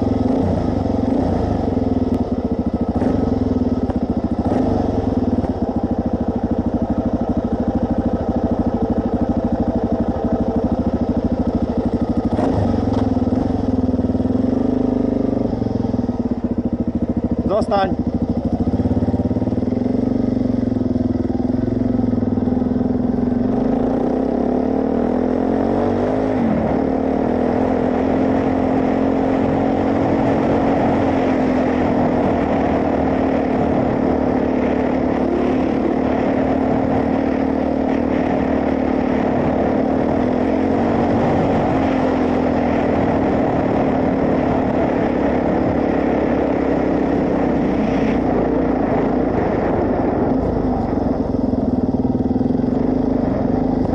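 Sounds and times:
motorcycle engine revving: 0:00.0 - 0:53.9.

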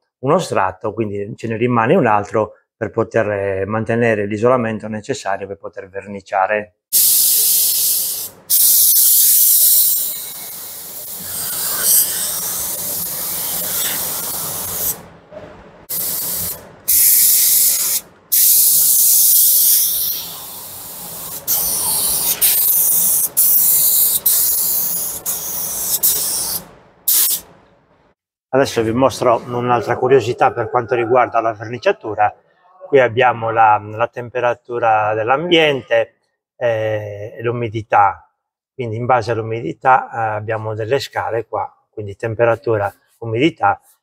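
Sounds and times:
paint spray gun hissing: 0:07.0 - 0:15.0, 0:15.9 - 0:27.4.

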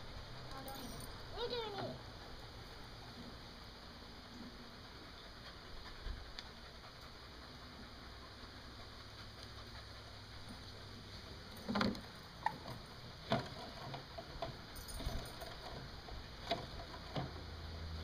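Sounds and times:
background hiss: 0:00.0 - 0:13.3.

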